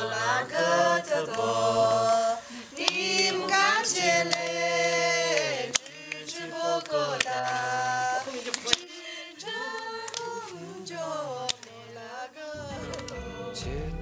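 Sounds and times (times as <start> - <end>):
group of women singing: 0.0 - 13.8
hand claps: 2.8 - 3.4, 5.3 - 7.6, 8.5 - 8.9, 9.7 - 10.5.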